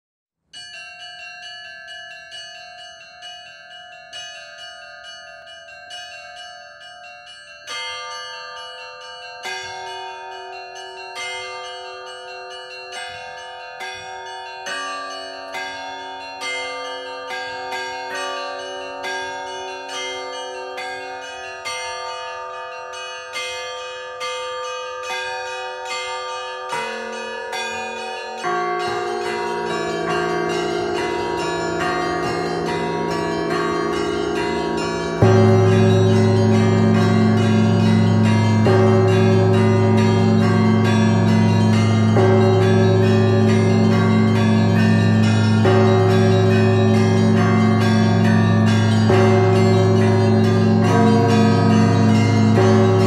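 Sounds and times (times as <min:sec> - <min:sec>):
church bells ringing: 0:00.6 - 0:53.0
deep bell tolling: 0:28.2 - 0:53.0.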